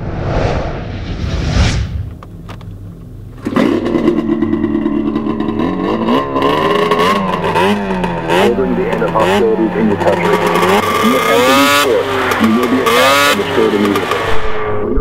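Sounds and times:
whoosh: 0:00.0 - 0:02.4, 0:14.3 - 0:15.0
snowmobile engine revving: 0:03.2 - 0:14.7.

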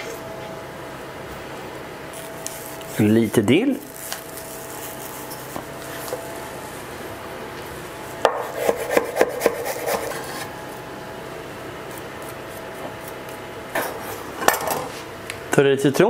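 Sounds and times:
knife chopping on wooden board: 0:08.2 - 0:10.0.

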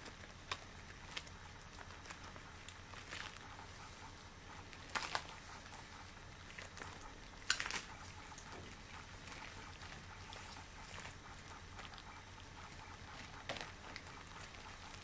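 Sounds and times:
latex gloves rustling: 0:00.0 - 0:15.0
rubber glove crackles: 0:00.2 - 0:05.8.

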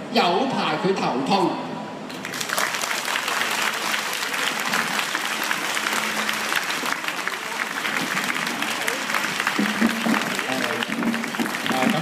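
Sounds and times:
audience applauding: 0:02.1 - 0:12.0.

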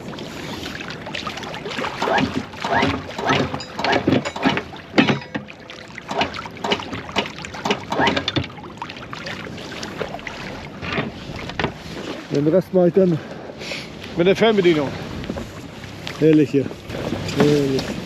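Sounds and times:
anchor chain clanking: 0:02.0 - 0:06.9.

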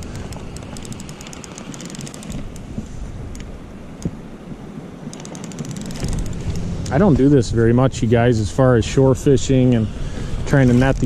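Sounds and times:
fishing reel clicking: 0:00.0 - 0:02.6, 0:05.1 - 0:06.4
wind on microphone: 0:00.0 - 0:11.0.

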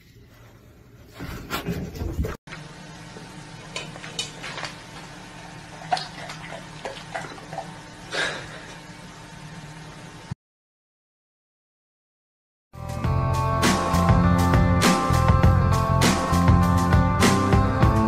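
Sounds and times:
kitchen objects clattering: 0:03.7 - 0:05.1.

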